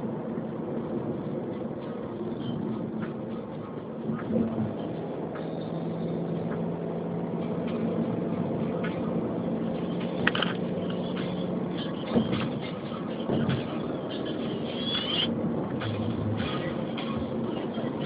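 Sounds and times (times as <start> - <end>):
vehicle road noise hum: 0.0 - 18.0
knocks and rattles: 9.7 - 14.6.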